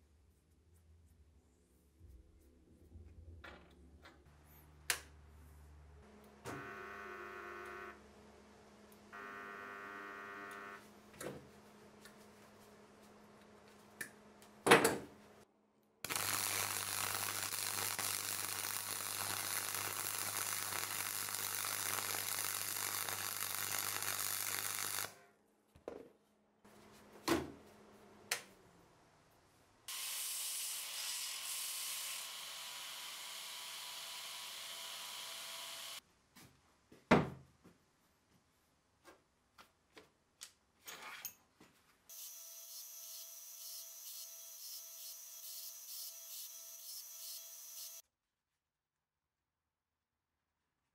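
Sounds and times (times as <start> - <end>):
welding noise: 6.1 - 8.0, 9.1 - 10.8, 16.0 - 25.2, 29.9 - 36.0
welder hum: 6.1 - 10.9, 16.0 - 25.3, 29.9 - 36.0, 42.1 - 48.0.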